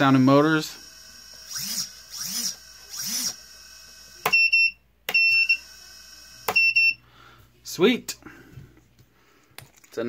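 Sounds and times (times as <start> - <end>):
drone motors whining: 0.1 - 4.5.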